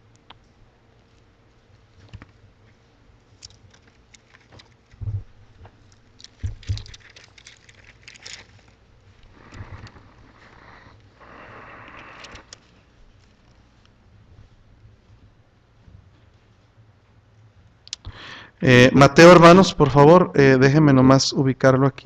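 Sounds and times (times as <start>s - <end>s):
pages being leafed through: 3.4s - 5.0s, 5.9s - 13.6s
dull thumps: 5.0s - 5.8s.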